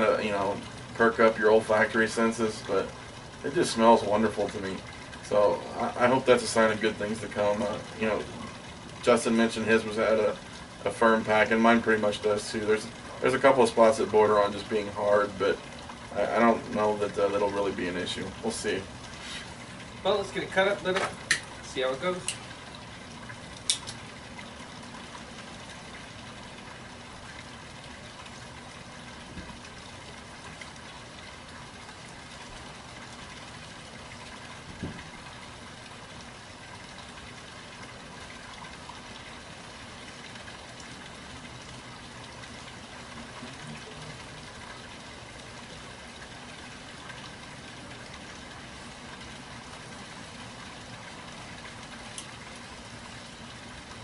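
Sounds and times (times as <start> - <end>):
faint hum tones: 0.0 - 54.0.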